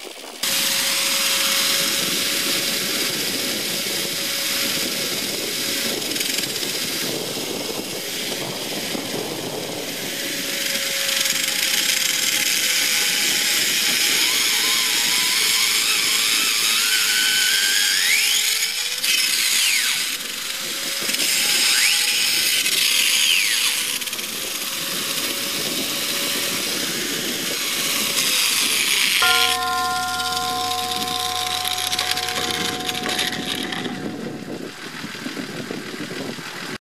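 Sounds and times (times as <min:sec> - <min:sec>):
grinder motor whine: 0:00.4 - 0:34.8
squealing grinder disc: 0:10.6 - 0:34.4.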